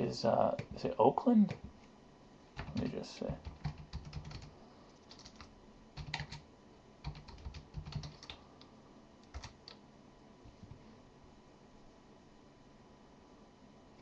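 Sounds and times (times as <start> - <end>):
computer keyboard typing: 2.6 - 6.4, 7.0 - 8.4, 9.2 - 9.8.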